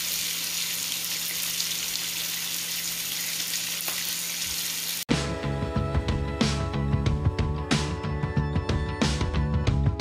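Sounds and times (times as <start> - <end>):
batter sizzling in oil: 0.0 - 5.1.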